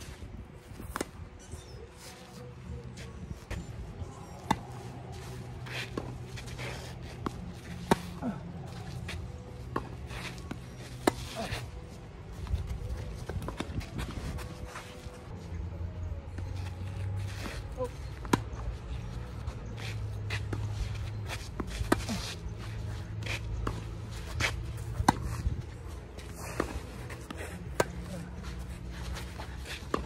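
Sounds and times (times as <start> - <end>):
footsteps on tennis court: 16.4 - 30.0.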